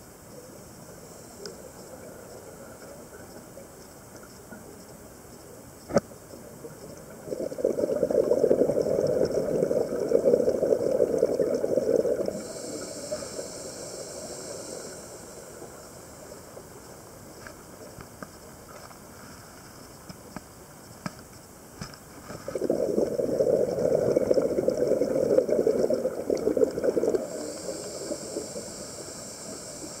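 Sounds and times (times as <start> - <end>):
regulator exhalation bubbling: 7.1 - 15.3, 22.5 - 30.0
regulator inhalation hiss: 7.4 - 17.2, 22.5 - 30.0.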